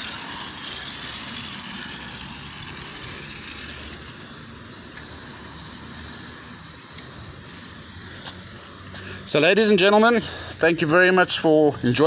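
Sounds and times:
spray bottle hissing: 0.0s - 5.8s.

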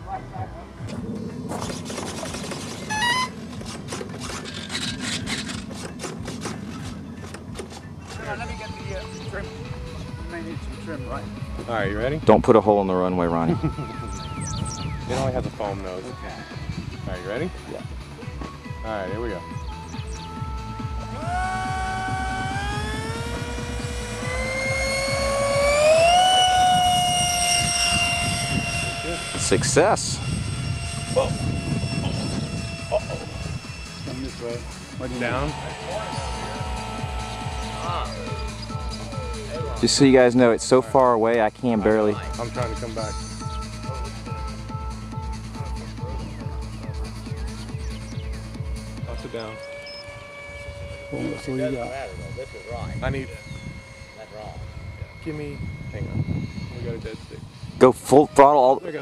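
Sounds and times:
electric ducted fan whining: 0.0s - 59.0s
steady low hum: 0.0s - 59.0s.

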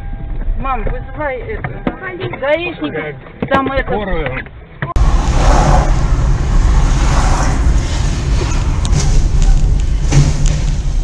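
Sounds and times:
car driving rumble: 4.9s - 11.0s.

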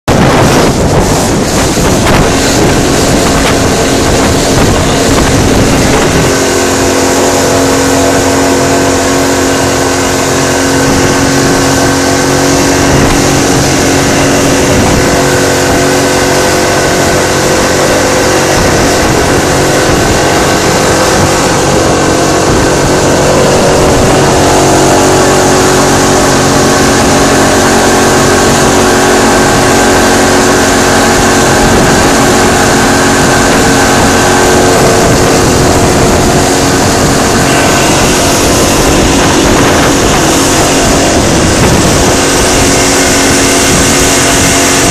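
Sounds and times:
outboard motor running: 0.0s - 44.9s
water wake rushing: 0.0s - 44.9s.

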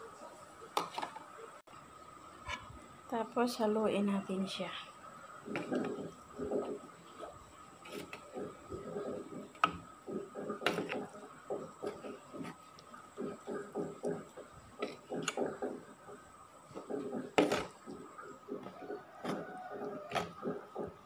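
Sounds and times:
spoon stirring wet mixture: 5.2s - 21.0s.

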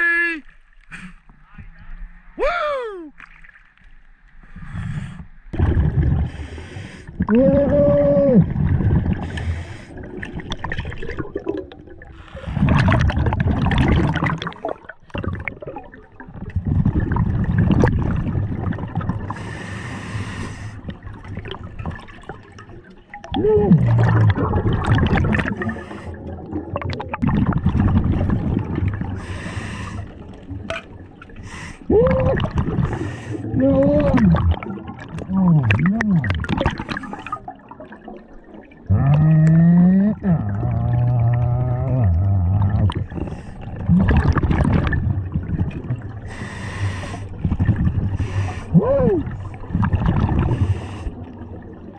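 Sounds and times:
bubbling regulator exhalations: 5.5s - 51.9s
hissing regulator inhale: 19.4s - 20.8s, 29.2s - 30.2s, 46.3s - 47.3s.

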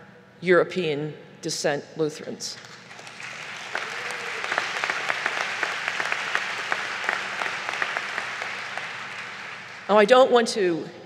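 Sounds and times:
audience applauding: 2.8s - 10.0s.

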